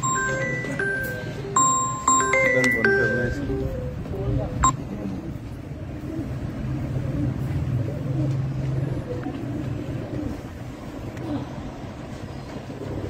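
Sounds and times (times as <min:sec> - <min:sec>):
pigeons cooing: 0:05.0 - 0:13.0.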